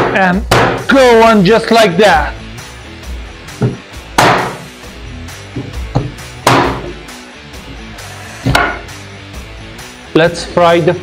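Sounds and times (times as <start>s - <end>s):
cleaver chopping on cutting board: 0.0s - 0.8s, 3.6s - 4.6s, 5.6s - 6.9s, 8.4s - 8.8s
background music: 0.0s - 11.0s.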